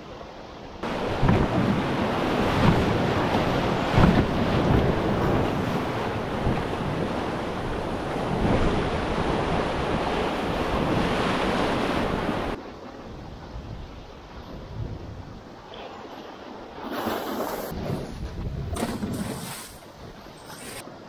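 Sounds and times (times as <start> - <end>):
river water rushing: 0.8 - 12.6
wind buffeting microphone: 0.8 - 15.6, 17.7 - 20.4.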